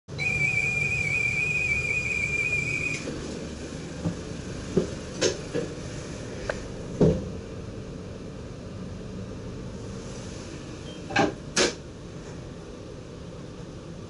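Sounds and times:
high steady whistle tone: 0.1s - 3.1s.

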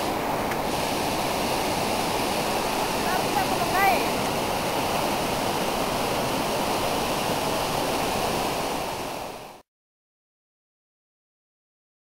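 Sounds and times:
heavy rush of falling water: 0.0s - 9.6s.

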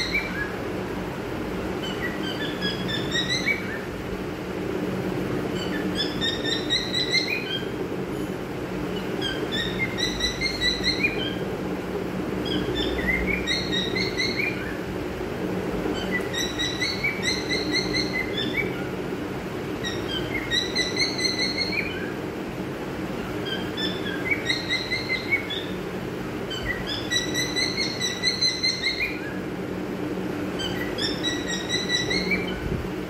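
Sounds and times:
steady low hum: 0.0s - 33.0s
cockatiel whistling: 1.8s - 3.8s.

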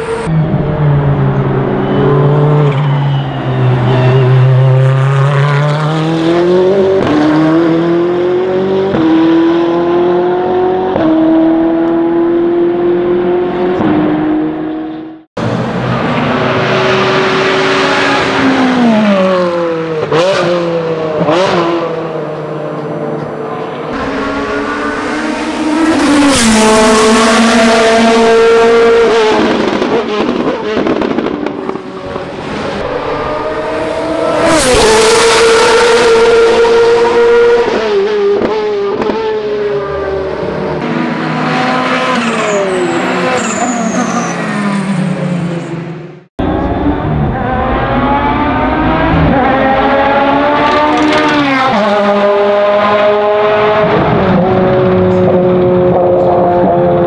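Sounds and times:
race car engine at full throttle: 0.0s - 57.0s.

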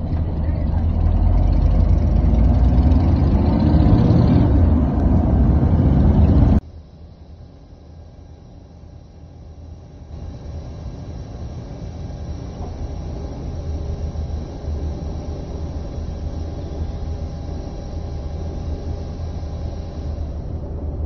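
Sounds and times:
motorcycle engines idling: 0.0s - 21.0s
faint steady tones: 6.6s - 21.0s.

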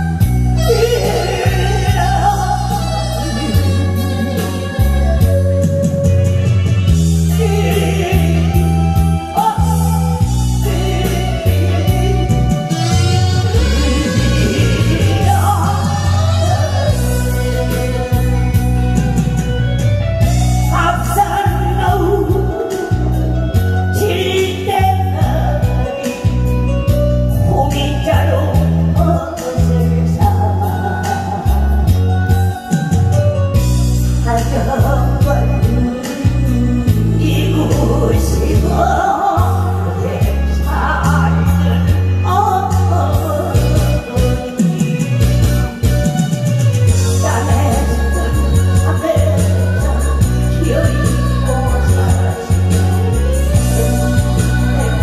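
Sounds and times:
man singing: 0.0s - 5.3s, 7.1s - 18.7s, 20.6s - 26.5s, 34.2s - 45.6s, 47.1s - 55.0s
bass line: 0.0s - 55.0s
instrumental accompaniment: 0.0s - 55.0s.

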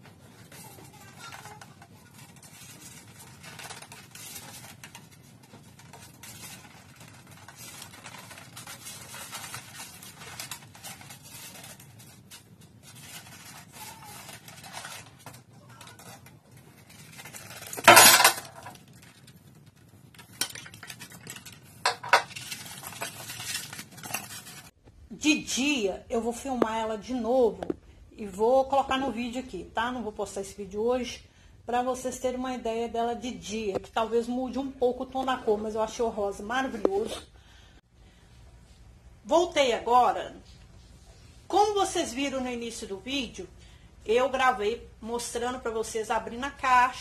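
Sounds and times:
polystyrene foam rubbing: 0.0s - 17.8s
metal parts clinking: 17.7s - 18.7s.

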